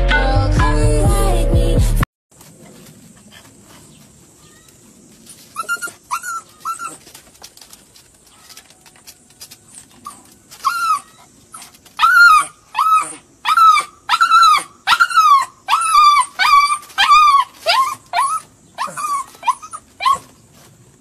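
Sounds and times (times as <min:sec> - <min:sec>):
puppy whining: 0:05.4 - 0:07.3, 0:09.7 - 0:20.4.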